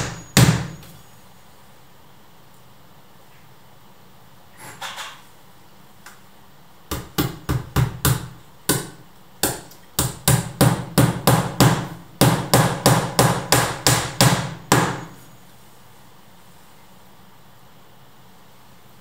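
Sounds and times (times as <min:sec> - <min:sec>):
hammer striking door: 0:00.0 - 0:00.8, 0:09.5 - 0:15.1.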